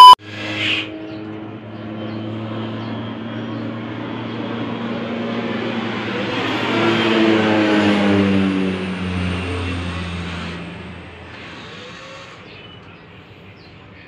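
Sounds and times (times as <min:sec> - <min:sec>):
vehicle passing on road: 0:00.9 - 0:11.3.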